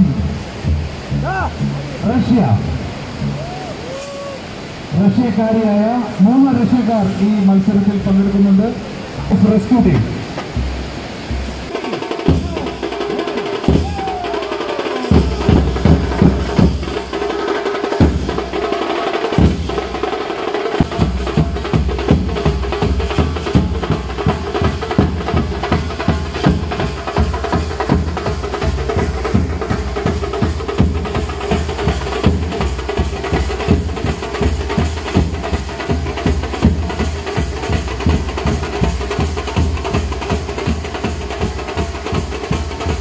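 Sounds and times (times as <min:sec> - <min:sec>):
deep bass: 0:00.0 - 0:03.5
drums and percussion beat: 0:00.0 - 0:43.0.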